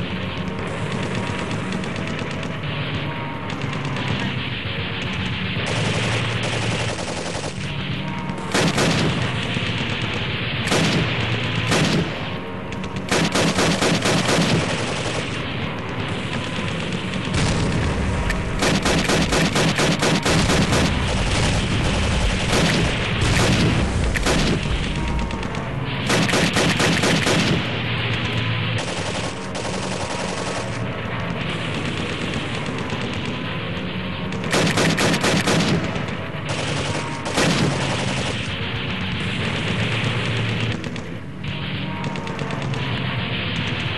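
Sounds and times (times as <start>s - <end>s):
paintball markers firing rapid bursts: 0.0s - 2.6s, 5.0s - 43.9s.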